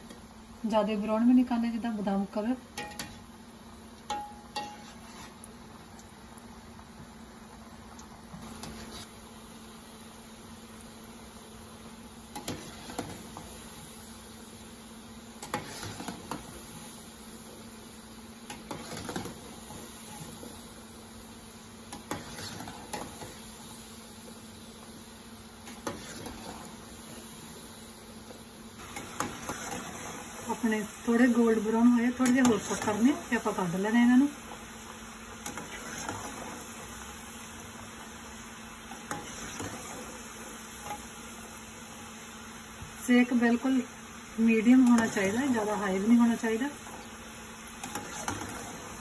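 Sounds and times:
dough sizzling in hot oil: 0.0 - 49.0
metal spoon scraping a pan: 4.6 - 5.4, 15.4 - 16.4, 21.9 - 23.3, 25.7 - 26.7, 28.8 - 30.2, 47.8 - 48.8.

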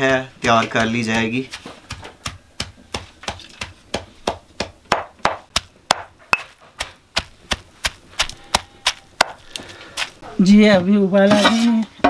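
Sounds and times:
stone pestle pounding in mortar: 0.0 - 9.4.

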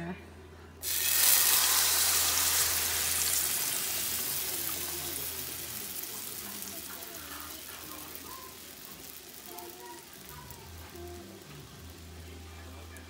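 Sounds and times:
beans sizzling in hot oil: 0.8 - 13.0.

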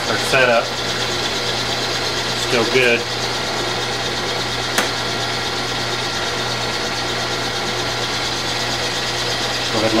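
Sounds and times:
milling machine humming: 0.0 - 10.0
sharp click: 4.7 - 5.0.

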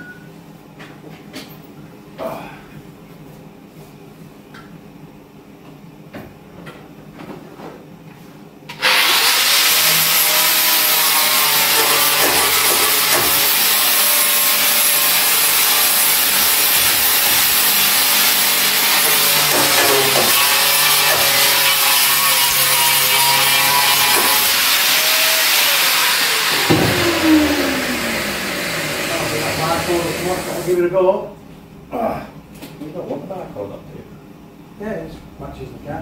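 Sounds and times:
angle grinder grinding metal: 8.7 - 30.8.

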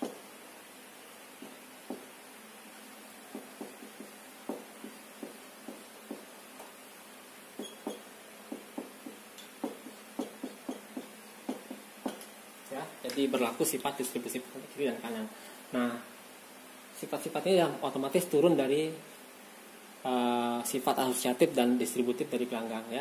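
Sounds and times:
marker tapping on whiteboard: 0.0 - 0.2, 1.4 - 2.1, 3.3 - 6.7, 7.6 - 12.3
faint steady hiss: 0.0 - 23.0.

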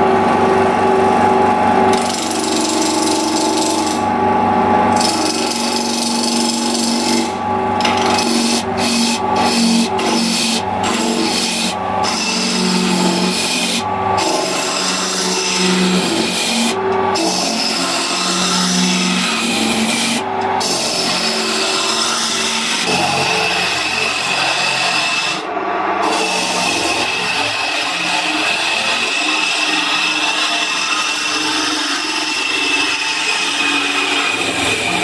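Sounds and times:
lathe humming: 0.0 - 35.0
gouge scraping spinning wood: 1.9 - 4.2, 4.8 - 35.0.

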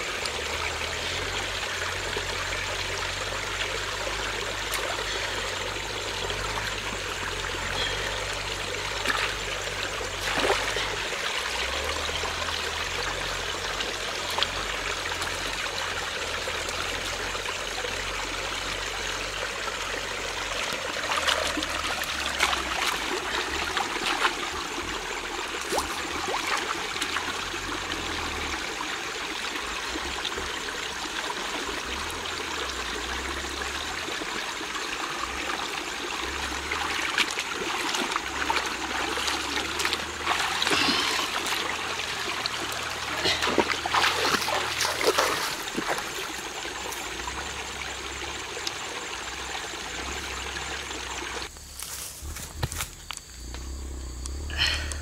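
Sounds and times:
stream running over rocks: 0.0 - 55.0
hands splashing in water: 37.0 - 46.4.

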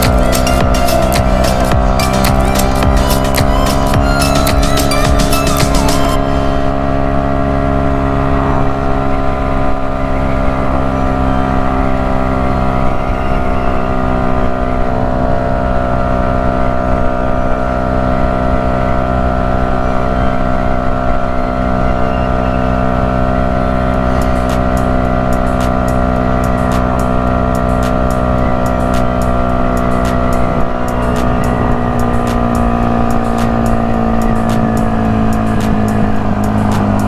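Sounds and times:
motorcycle engine cruising: 0.0 - 37.0.

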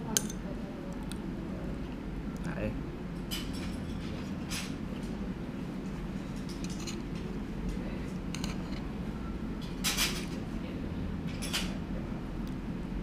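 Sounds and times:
steady low hum: 0.0 - 13.0.

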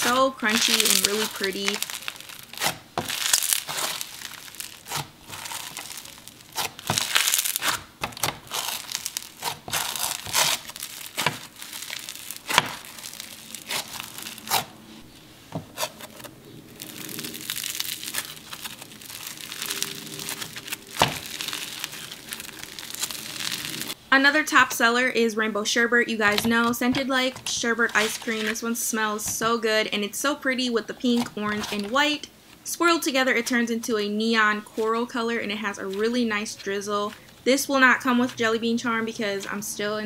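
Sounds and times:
foam-bead slime crunching: 0.0 - 15.1, 15.7 - 24.0, 26.2 - 28.8.

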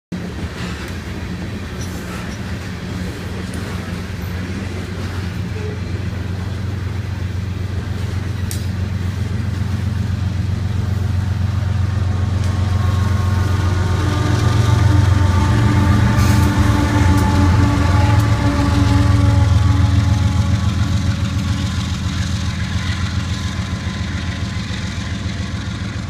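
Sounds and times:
diesel locomotive engine drone: 0.1 - 26.0
train cars rumbling on rails: 0.1 - 26.0.

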